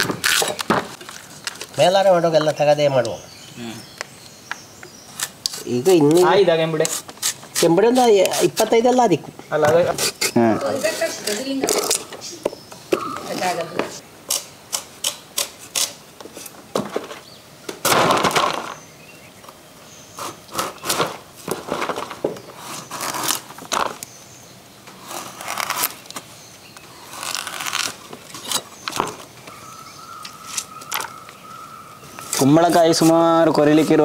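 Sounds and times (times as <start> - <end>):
knives cutting and scraping gourd: 0.0 - 1.7, 5.1 - 9.0, 9.7 - 12.1, 14.3 - 16.6, 20.1 - 21.2, 22.5 - 24.1, 24.9 - 26.3, 26.9 - 29.2, 32.2 - 34.0.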